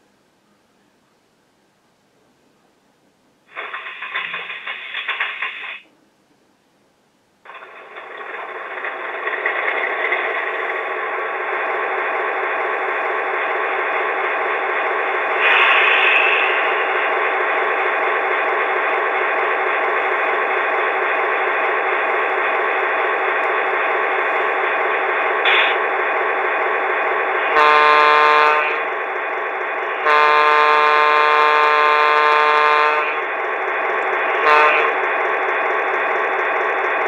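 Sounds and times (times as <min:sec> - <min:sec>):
short hiss: 0:03.5 - 0:05.8, 0:15.3 - 0:17.0
multi-tone horn blasts: 0:27.5 - 0:28.8, 0:30.0 - 0:33.2, 0:34.4 - 0:35.0.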